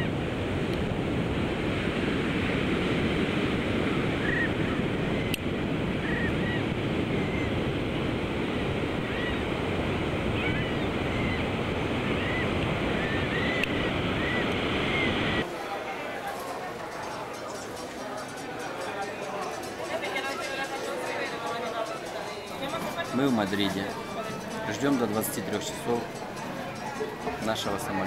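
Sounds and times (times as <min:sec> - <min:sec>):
shorebirds chirping: 0:08.6 - 0:15.4, 0:16.4 - 0:28.0.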